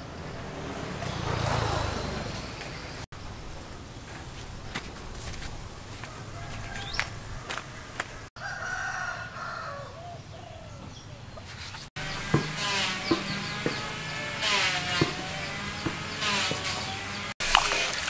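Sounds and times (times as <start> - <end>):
bird calls: 0.0 - 17.3
rooster crowing: 6.0 - 11.3.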